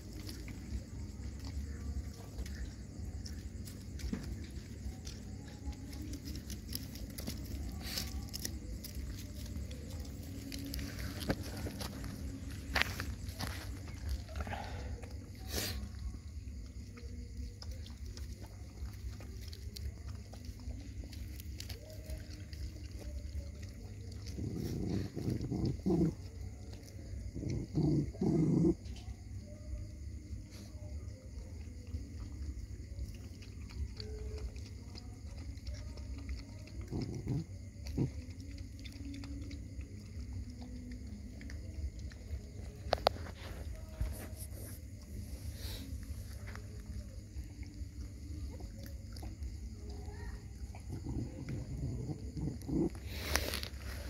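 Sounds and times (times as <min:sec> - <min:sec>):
puppies rustling on dry ground: 0:06.0 - 0:14.6
dog growling low: 0:24.1 - 0:26.6, 0:27.4 - 0:29.0, 0:36.8 - 0:38.5, 0:50.6 - 0:54.0.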